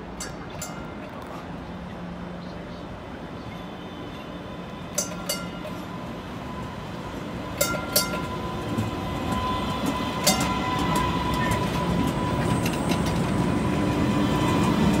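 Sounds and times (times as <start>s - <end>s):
high train whine: 0.0s - 15.0s
train rumble: 0.0s - 15.0s
wheels clicking over rail joints: 4.1s - 6.0s, 7.1s - 15.0s.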